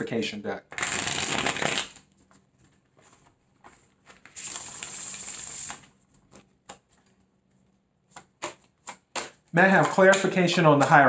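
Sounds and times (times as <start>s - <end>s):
cards shuffling: 0.7s - 7.2s.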